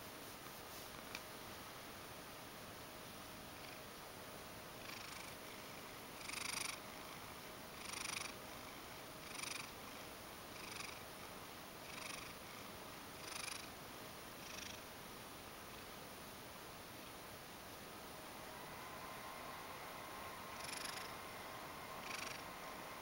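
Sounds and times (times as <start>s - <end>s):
cat purring: 4.8s - 9.8s, 10.6s - 11.0s, 11.8s - 12.6s, 13.2s - 13.7s, 14.4s - 14.9s, 18.5s - 23.0s.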